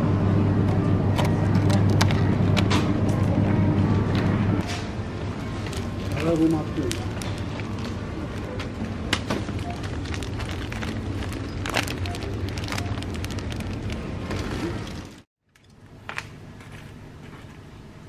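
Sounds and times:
steady hum: 0.0 - 18.0
plastic bags crinkling: 5.6 - 8.6, 9.4 - 15.3.

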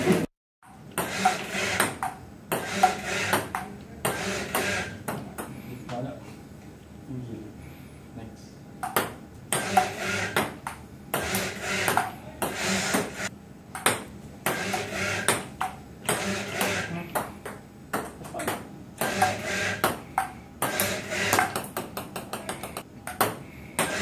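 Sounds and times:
table tennis ball clicking: 8.8 - 13.1.

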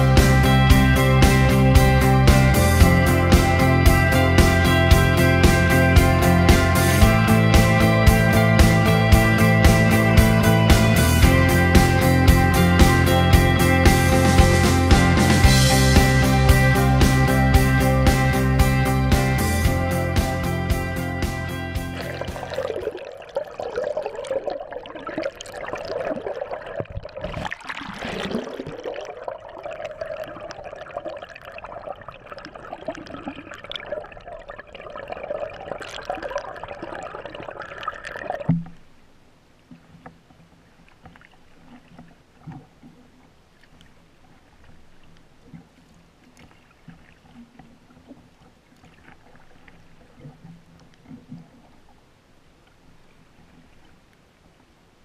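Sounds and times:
muffled underwater water rushing: 0.0 - 18.2, 19.4 - 55.0
faint low water sloshing: 21.8 - 55.0.

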